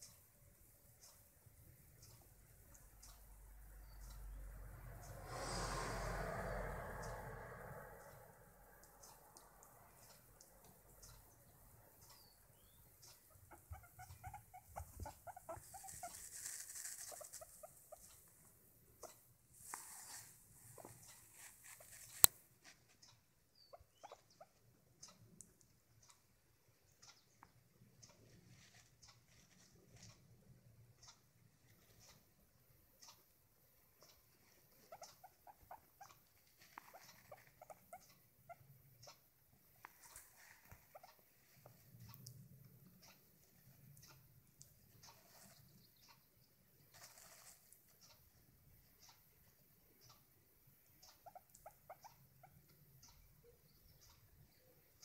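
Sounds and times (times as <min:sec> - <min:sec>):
guinea pig clucking: 0:08.8 - 0:25.3, 0:25.9 - 0:55.0
fur brushing microphone: 0:14.7 - 0:17.8, 0:19.6 - 0:22.9.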